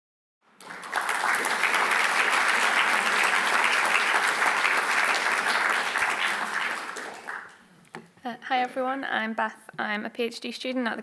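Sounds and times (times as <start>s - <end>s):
audience applauding: 0.5s - 7.6s.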